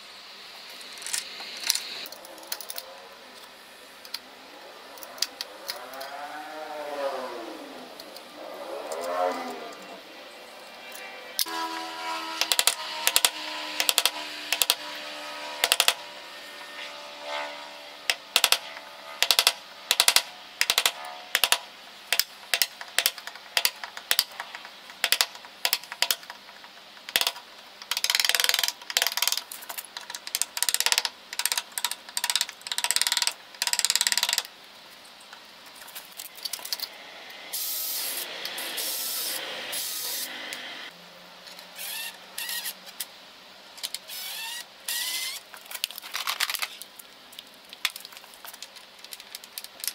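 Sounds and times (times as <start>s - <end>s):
hissing noise: 36.9s - 40.9s.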